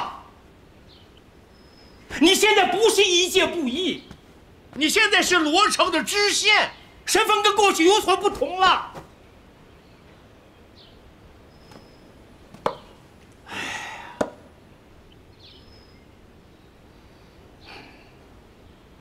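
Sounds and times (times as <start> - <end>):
sharp knocks: 12.6 - 12.9
man exhaling heavily: 13.4 - 14.4, 17.6 - 18.2.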